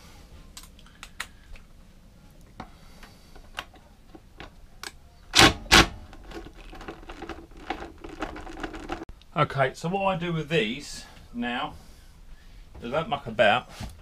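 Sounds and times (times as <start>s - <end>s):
tool handling clicks and knocks: 3.4s - 9.0s.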